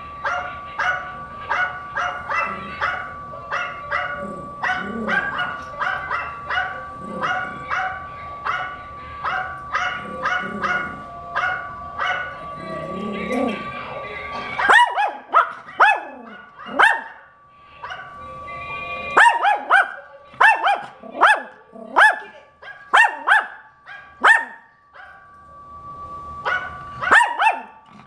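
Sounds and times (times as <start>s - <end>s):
faint steady tone: 0.0s - 28.0s
recorded barks through speakers: 0.1s - 25.3s, 26.4s - 27.9s
small dog barking: 0.3s - 12.3s, 14.6s - 17.2s, 19.1s - 25.2s, 26.5s - 27.8s.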